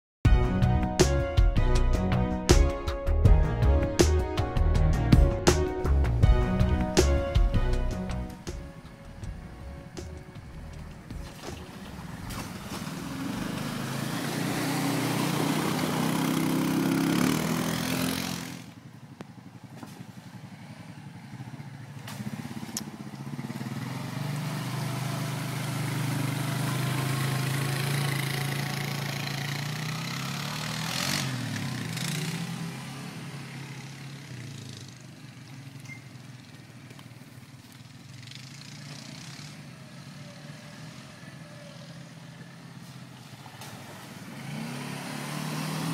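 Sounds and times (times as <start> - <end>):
quad bike engine revving: 11.0 - 18.8, 19.7 - 45.9
splashing through muddy water: 11.2 - 17.0, 43.0 - 44.4.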